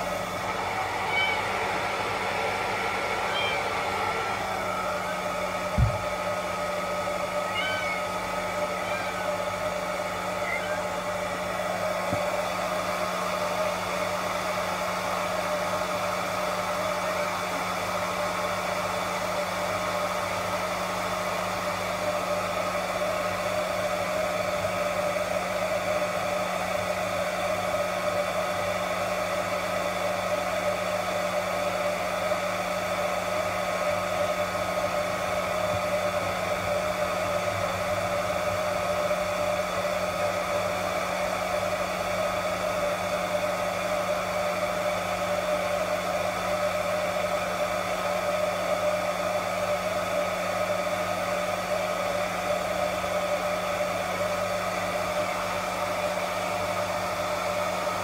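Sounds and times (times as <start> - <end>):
hair dryer whining: 0.0 - 58.0
faint cat mews: 1.0 - 1.6, 3.2 - 3.8, 7.2 - 11.2.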